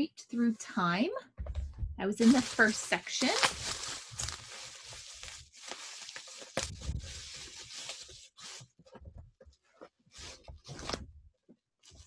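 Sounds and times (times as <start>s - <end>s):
bubble wrap crinkling: 2.1s - 8.8s.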